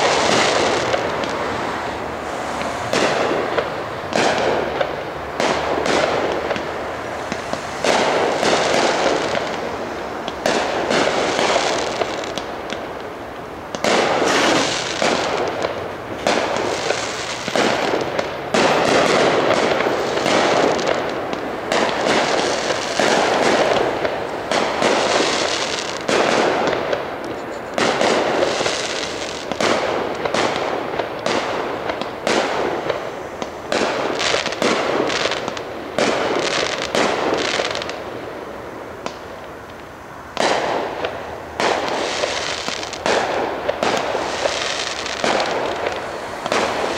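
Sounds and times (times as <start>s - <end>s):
firework shells bursting: 2.6s - 38.0s.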